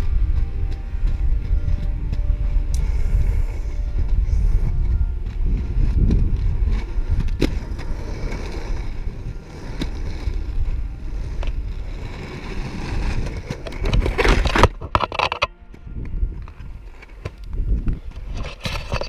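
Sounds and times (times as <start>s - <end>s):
scraping rush: 0.0s - 15.2s
skate wheels rolling on pavement: 0.0s - 19.0s.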